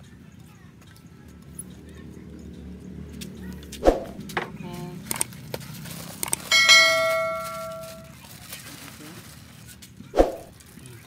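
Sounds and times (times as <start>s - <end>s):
bright bell ding: 6.5s - 8.1s.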